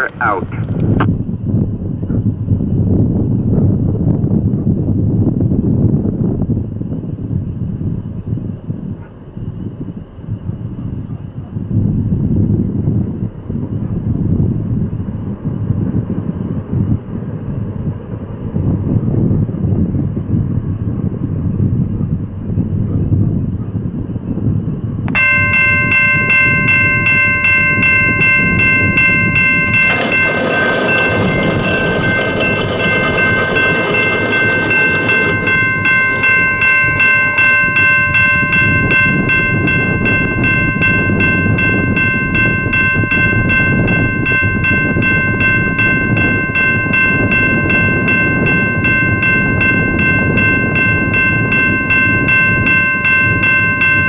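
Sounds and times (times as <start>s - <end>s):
railroad crossing bell ringing: 25.1s - 54.0s.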